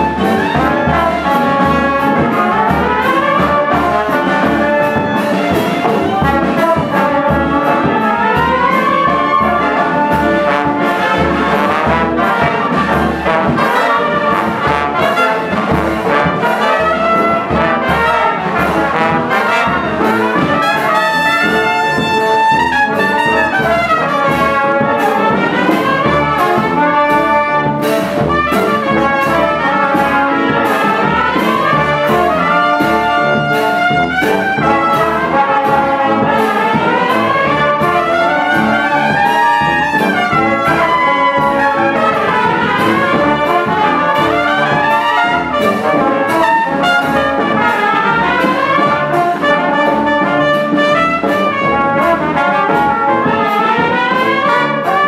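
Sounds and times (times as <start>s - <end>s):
military brass band playing: 0.0s - 55.0s
trumpets playing melody: 0.0s - 55.0s.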